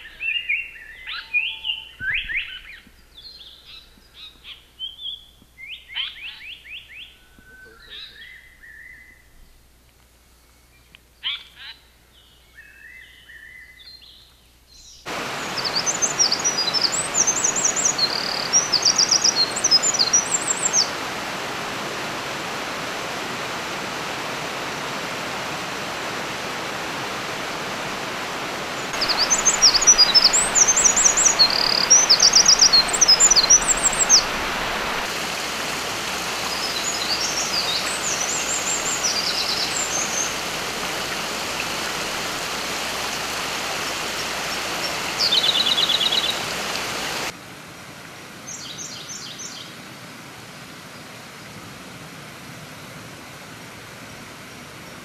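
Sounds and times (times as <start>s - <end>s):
songbird song: 0.0s - 47.3s, 48.4s - 49.8s
steady rushing noise: 15.1s - 47.4s.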